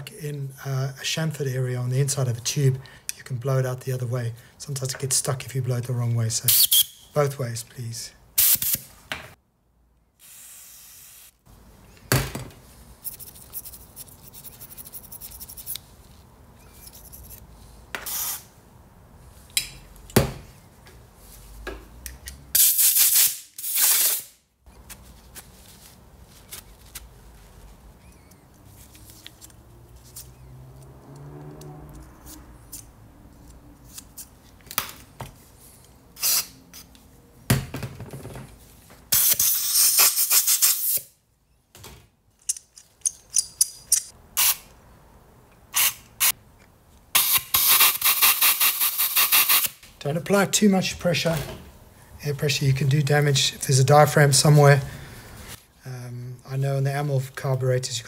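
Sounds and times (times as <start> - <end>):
compressed air blasts: 8.4 - 8.9, 10.2 - 11.3, 18.0 - 18.5, 22.6 - 24.4
metal parts clicking and knocking: 42.4 - 44.1.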